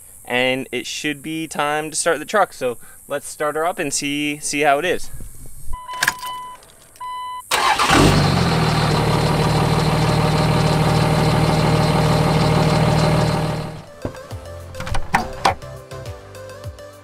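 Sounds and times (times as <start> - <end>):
diesel engine cranking and idling: 7.5 - 14.0.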